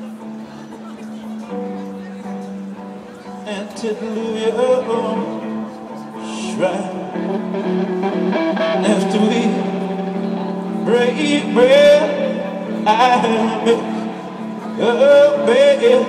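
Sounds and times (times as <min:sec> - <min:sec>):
electric guitars sustained chords: 0:00.0 - 0:16.0
man singing: 0:03.4 - 0:16.0.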